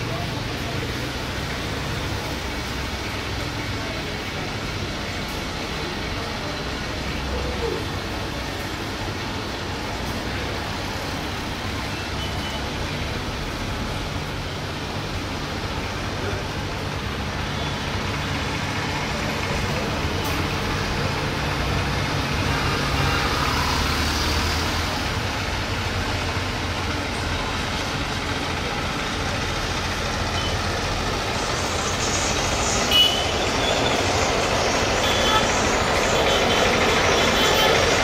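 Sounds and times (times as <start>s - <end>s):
distant jet engine rumble: 27.1s - 38.0s.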